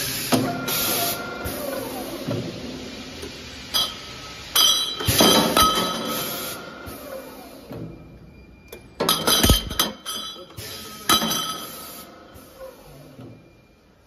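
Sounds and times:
steel pipes clinking: 3.7s - 6.2s, 9.0s - 11.9s.

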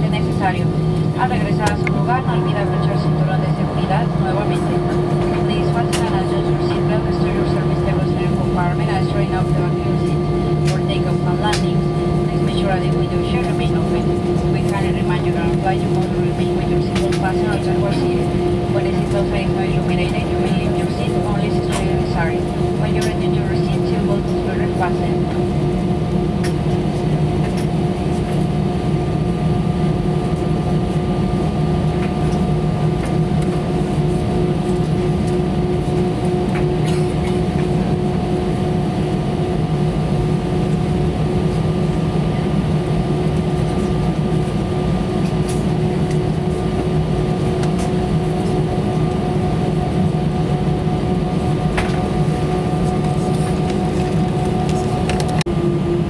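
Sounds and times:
aircraft cabin engine rumble: 0.0s - 56.0s.

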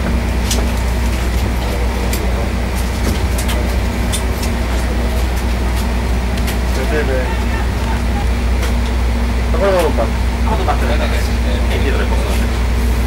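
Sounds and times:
ship engines humming: 0.0s - 13.0s.

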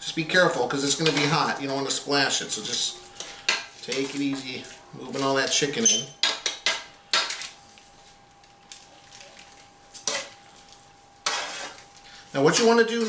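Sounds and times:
fork scraping a foil tray: 10.0s - 10.4s, 11.2s - 13.0s.

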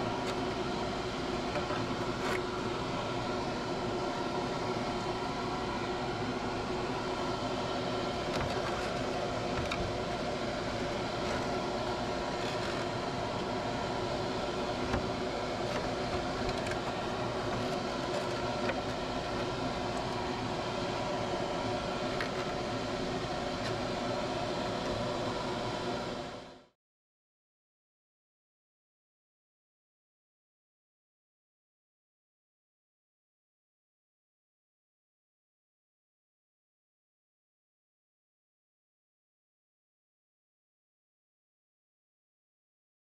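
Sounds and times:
extraction fan humming: 0.0s - 26.7s.

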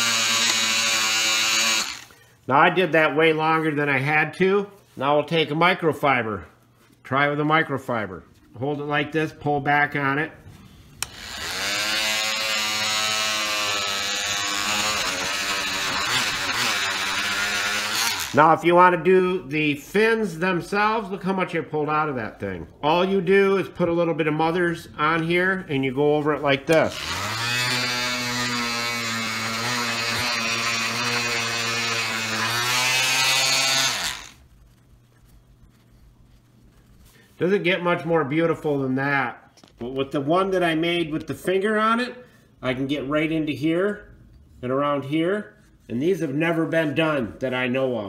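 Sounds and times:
oscillating multi-tool buzzing: 0.0s - 2.2s, 11.0s - 18.4s, 26.9s - 34.4s
cloth rubbing hiss: 34.1s - 37.8s.

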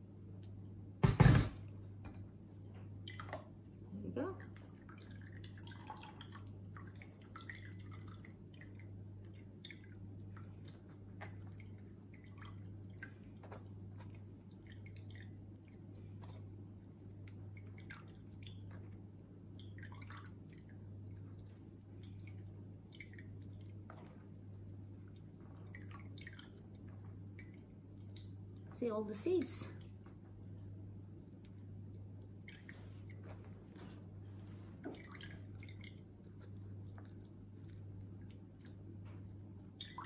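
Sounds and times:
steady low hum: 0.0s - 40.0s
juice dripping into jug: 4.4s - 28.8s, 34.9s - 40.0s
spatula squishing pulp through sieve: 10.7s - 29.0s.

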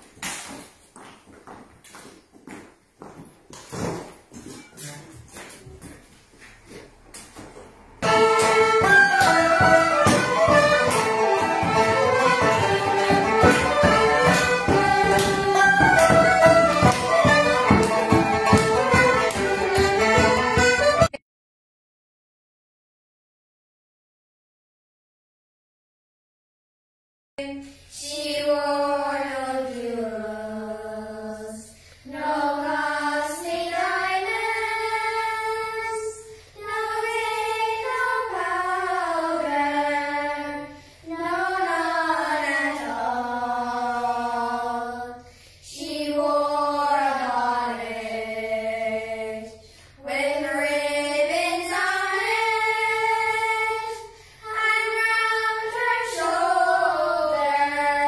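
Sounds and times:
children singing together: 8.0s - 21.0s, 27.4s - 58.0s.

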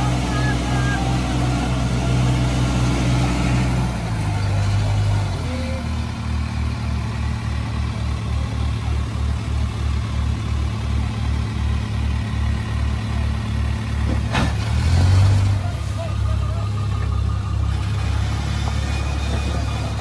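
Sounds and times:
heavy diesel engine under load: 0.0s - 20.0s.

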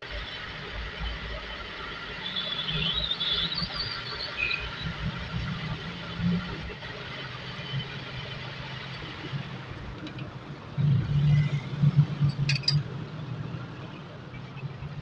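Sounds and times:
sharp metallic clicks: 12.3s - 12.8s.

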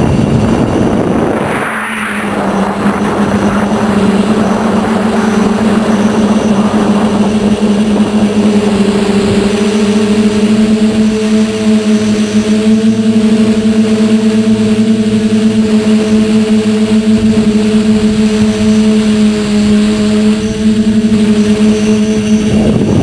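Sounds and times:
rush of air: 0.0s - 8.5s
quadcopter motors buzzing: 0.0s - 23.0s.

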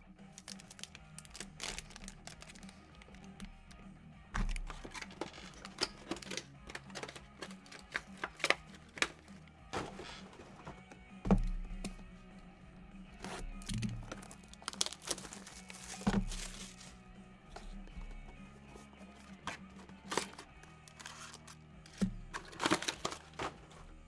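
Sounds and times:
background music: 0.0s - 24.0s
plastic wrap crinkling and tearing: 0.4s - 3.2s, 13.3s - 16.9s, 20.0s - 23.6s.

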